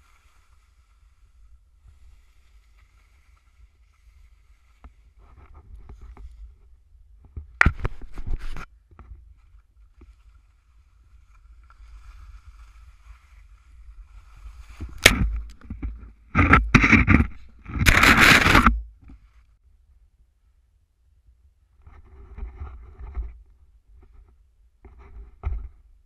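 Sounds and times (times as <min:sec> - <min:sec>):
skis scraping through snow: 0:00.0 - 0:06.6, 0:10.0 - 0:15.5.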